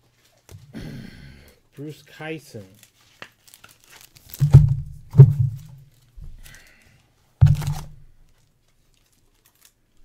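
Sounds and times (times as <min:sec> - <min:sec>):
dull thumps against a desk: 0:04.4 - 0:05.8, 0:07.4 - 0:08.0.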